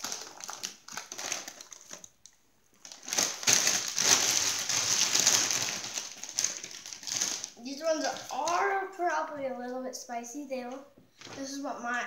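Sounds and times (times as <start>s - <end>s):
chip bag crinkling: 0.0s - 8.7s.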